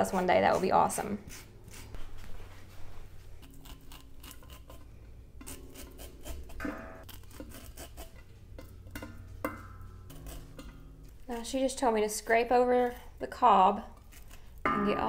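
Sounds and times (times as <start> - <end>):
knife scraping corn cob: 0.5 - 2.0, 3.4 - 8.2, 13.9 - 14.6.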